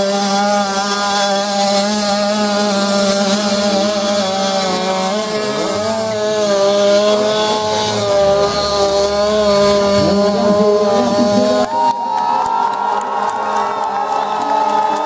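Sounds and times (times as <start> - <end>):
scooter engine revving high: 0.0 - 15.0.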